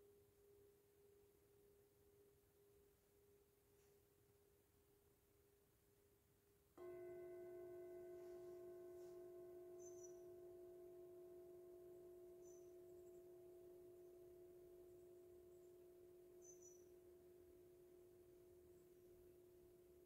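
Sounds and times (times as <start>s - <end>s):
singing bowl ringing: 6.8s - 20.0s.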